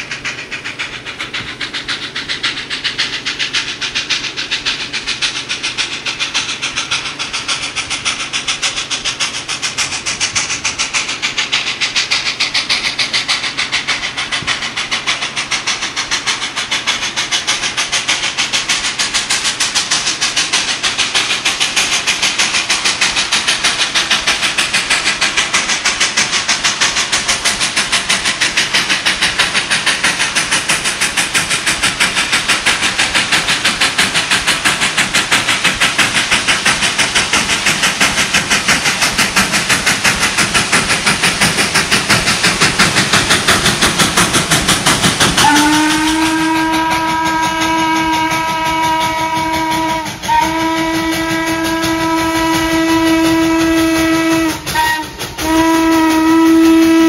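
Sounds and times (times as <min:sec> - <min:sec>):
steam locomotive exhaust chuffing: 0:00.0 - 0:57.0
chord whistle: 0:45.4 - 0:57.0.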